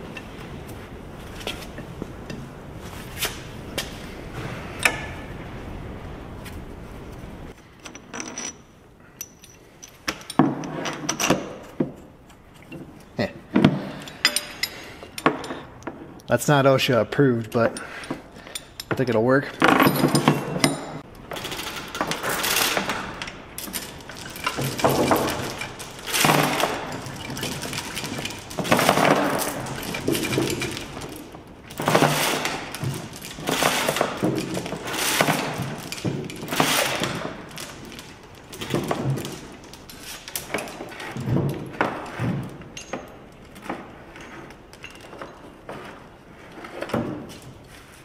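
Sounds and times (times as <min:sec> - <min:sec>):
metallic clinks of hand tool: 0:07.8 - 0:10.4, 0:14.0 - 0:15.6
chain rattling against metal: 0:07.8 - 0:13.2, 0:13.8 - 0:15.7, 0:17.5 - 0:45.6.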